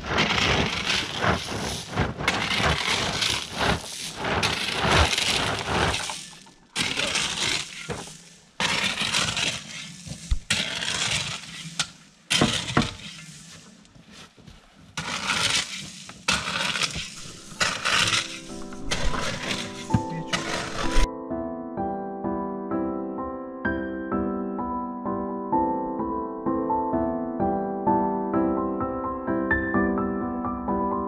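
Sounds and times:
crunching crackling noise: 0.0 - 21.1.

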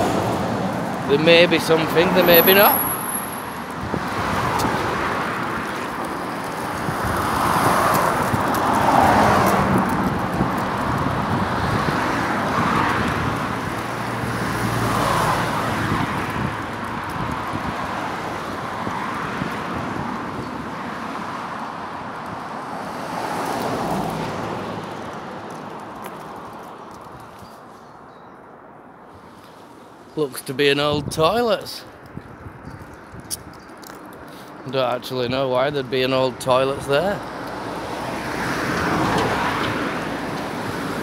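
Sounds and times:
vehicles passing: 0.0 - 41.0
wind on microphone: 3.6 - 20.8, 30.8 - 33.7.

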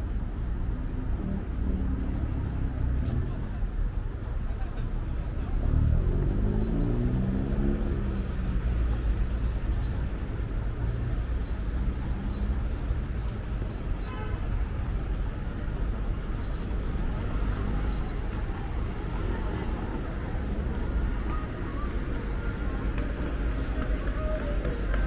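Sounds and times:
city street traffic: 0.0 - 25.0
bus engine running: 14.8 - 25.0.

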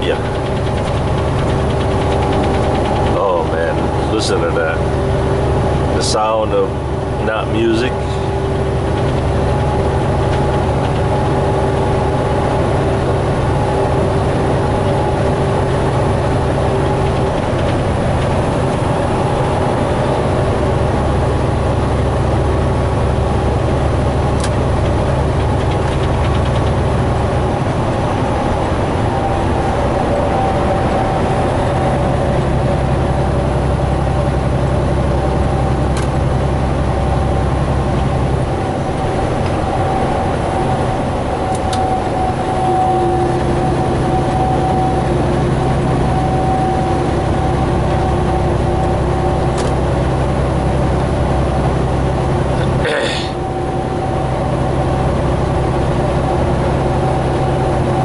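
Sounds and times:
diesel engine drone: 0.0 - 58.0
road noise: 0.0 - 58.0.

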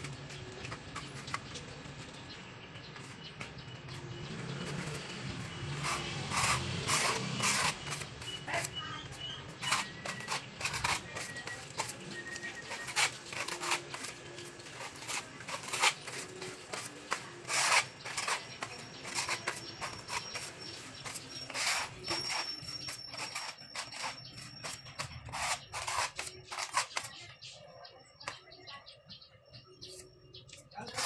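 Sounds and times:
putty knife scraping cement wall: 5.6 - 27.2.

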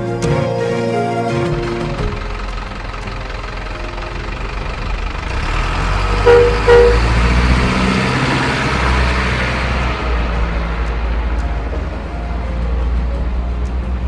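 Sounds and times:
toy truck engine rumble: 1.3 - 11.0
short horn toots: 6.2 - 7.1.

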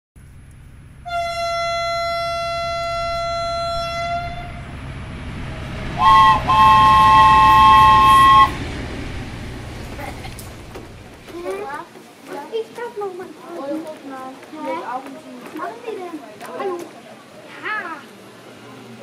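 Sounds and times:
train running rumble: 0.2 - 12.2
train whistle: 1.0 - 4.8, 5.7 - 8.8
two-tone train horn blasts: 1.0 - 9.4.

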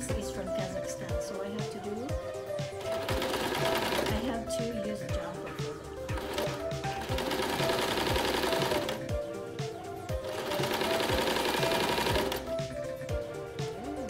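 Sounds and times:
background music with steady beat: 0.0 - 14.0
sewing machine stitching: 2.8 - 4.4, 6.1 - 9.1, 10.2 - 12.5.

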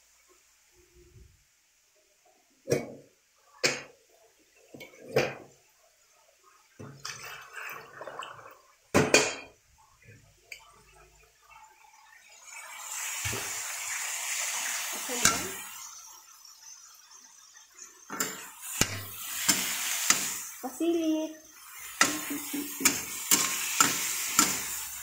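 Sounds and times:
metal cookware clanking: 15.1 - 15.7, 18.1 - 20.5, 21.9 - 25.0
steady hiss: 18.0 - 25.0.

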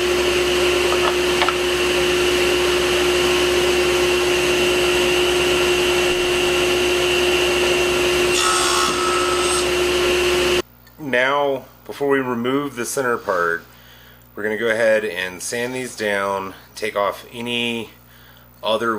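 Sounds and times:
table saw whining: 0.0 - 10.6.

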